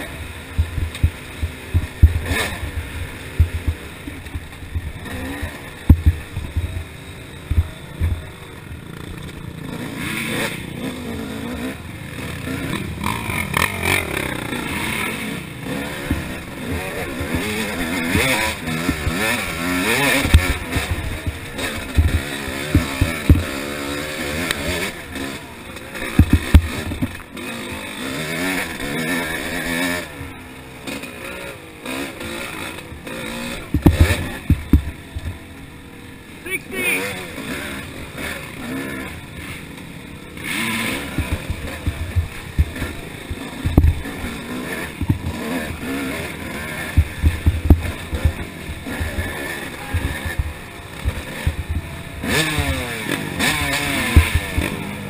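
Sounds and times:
dirt bike engine revving: 0.0 - 55.0
heavy thumps: 0.5 - 2.3, 26.1 - 27.2, 33.7 - 35.4, 41.1 - 44.2, 44.9 - 45.4, 46.9 - 52.0.

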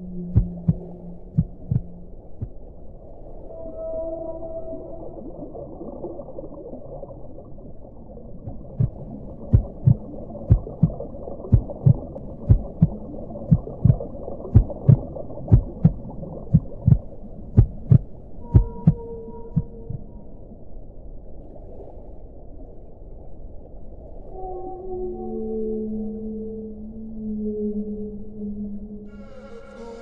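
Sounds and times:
soft low double thumps: 0.3 - 2.6, 8.4 - 20.1.

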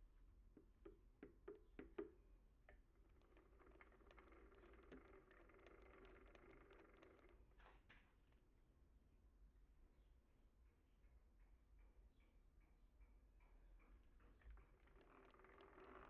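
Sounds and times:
sharp clicks: 2.7 - 7.5.

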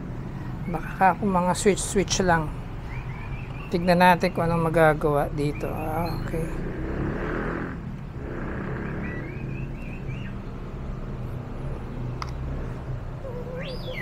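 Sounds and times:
faint bird chirps: 2.8 - 3.8, 8.6 - 10.6, 13.2 - 14.0.

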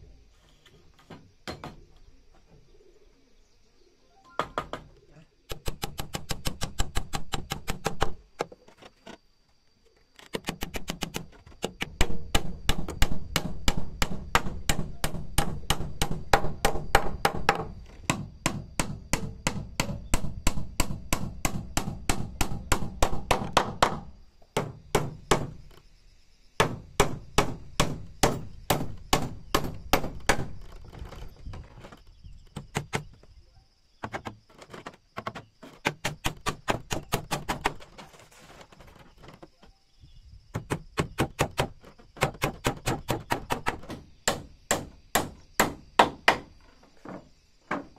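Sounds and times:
hammer driving nails: 10.3 - 25.6, 35.2 - 37.8, 40.5 - 46.5.

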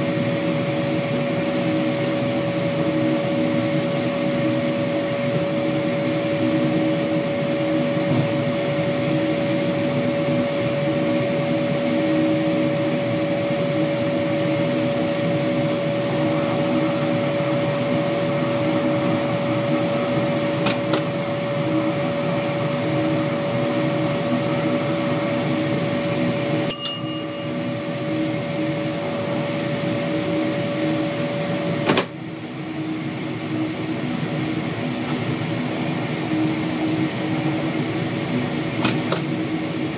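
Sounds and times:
diesel engine drone: 0.0 - 39.9
high even whine: 11.8 - 35.6.

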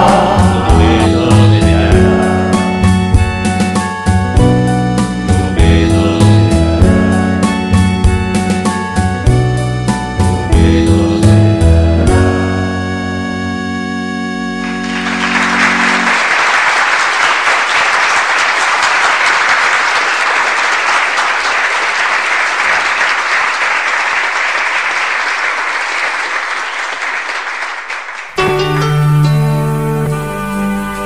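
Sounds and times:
audience applauding: 0.0 - 2.7, 14.6 - 28.5
song held chord: 0.0 - 16.5, 28.4 - 31.0.

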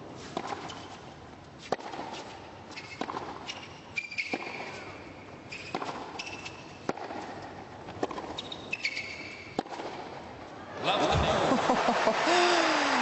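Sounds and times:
shoes squeaking on court: 0.2 - 10.1
tennis ball hit by racquets: 0.3 - 0.9, 1.6 - 10.2.

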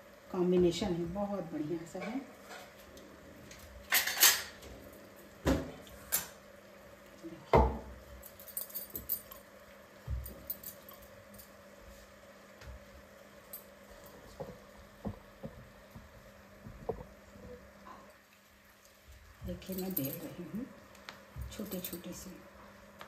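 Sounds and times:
steel utensils knocking and clinking: 3.9 - 4.5.

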